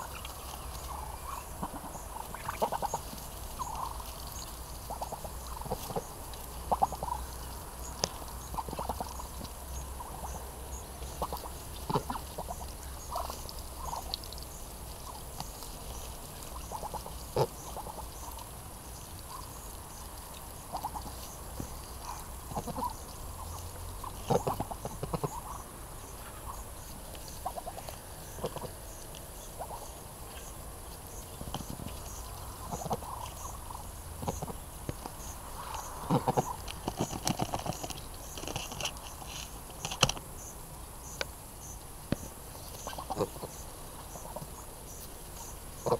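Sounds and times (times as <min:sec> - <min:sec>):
ducks giving soft calls: 0:00.0 - 0:40.1, 0:41.2 - 0:45.9.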